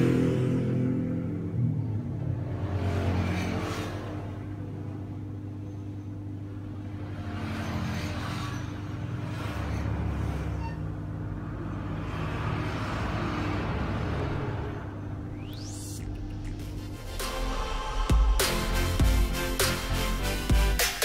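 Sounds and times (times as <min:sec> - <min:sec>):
road traffic passing: 0:00.0 - 0:20.7.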